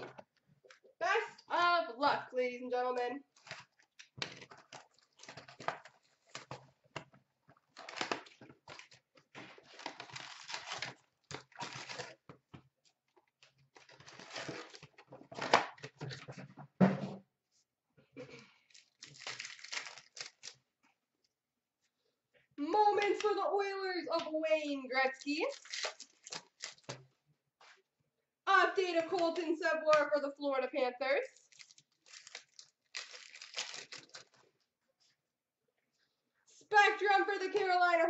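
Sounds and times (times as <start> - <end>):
wrapper and cardboard rustling tearing: 3.3 - 6.8, 7.6 - 12.3, 13.4 - 16.2, 18.7 - 20.7, 25.0 - 27.0, 31.4 - 34.6.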